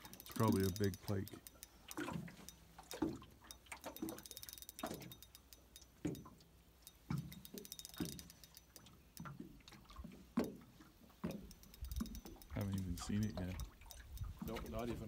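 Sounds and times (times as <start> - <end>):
faint fast ticking: 0.0 - 9.4, 11.3 - 15.0
small waves slapping against boat: 8.0 - 15.0.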